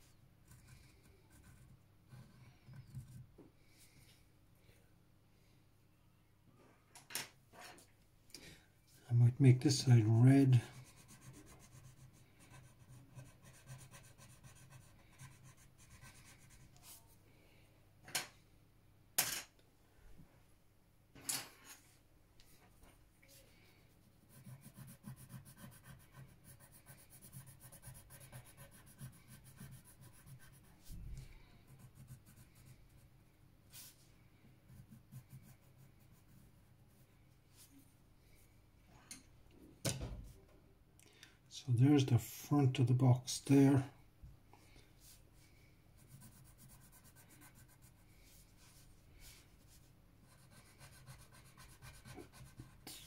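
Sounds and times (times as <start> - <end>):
pencil scratching on paper: 0.4 - 3.2, 10.2 - 17.0, 24.2 - 31.0, 31.7 - 33.0, 34.7 - 37.1, 46.0 - 53.0.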